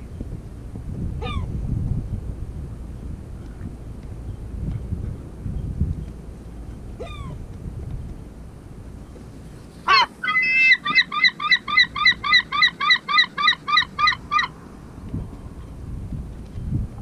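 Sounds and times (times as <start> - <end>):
gull calling: 1.2 - 1.5, 7.0 - 7.4, 9.9 - 14.5
gull laughing call: 7.0 - 7.4, 9.9 - 14.5.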